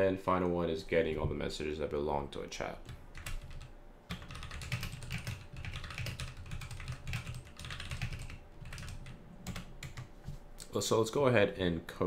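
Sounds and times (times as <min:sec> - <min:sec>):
fast typing on keyboard: 0:02.8 - 0:10.1.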